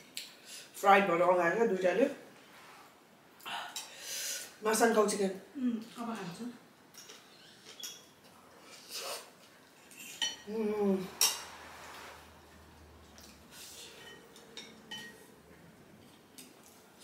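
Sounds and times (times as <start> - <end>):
utensils clinking on a bowl: 9.9 - 10.5, 13.2 - 15.4
person humming: 10.5 - 11.1.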